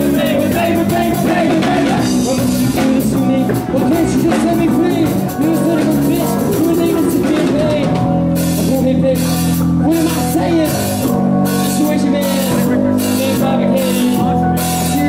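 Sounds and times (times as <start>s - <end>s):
distorted electric guitar: 0.0s - 15.0s
drum kit: 0.0s - 15.0s
electric bass: 0.0s - 15.0s
man singing: 0.0s - 15.0s.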